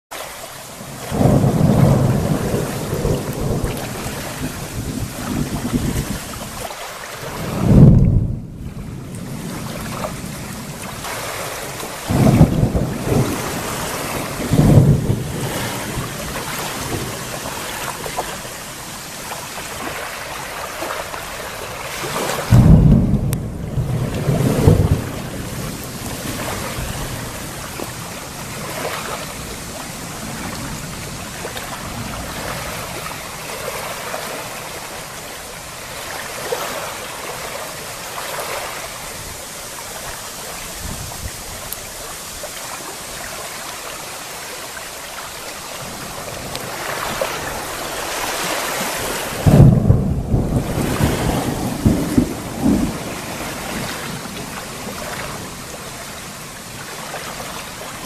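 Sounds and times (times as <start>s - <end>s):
rain: 0.1s - 58.0s
wind: 0.1s - 58.0s
thunder rumbling with sharp cracks: 0.8s - 6.6s, 7.2s - 18.4s, 21.9s - 33.2s, 45.8s - 55.7s.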